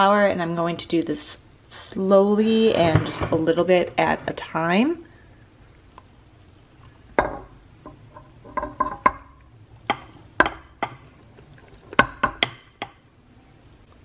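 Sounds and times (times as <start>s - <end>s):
glass bowl tapping steel bowl: 7.2s - 11.0s, 12.0s - 13.0s.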